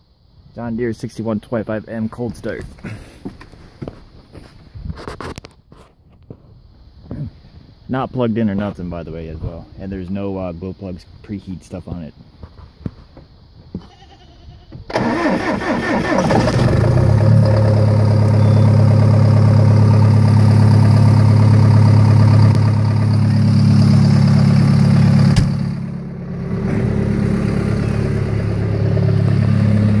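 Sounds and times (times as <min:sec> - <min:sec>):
diesel tractor engine starting and idling: 0:14.9 - 0:30.0.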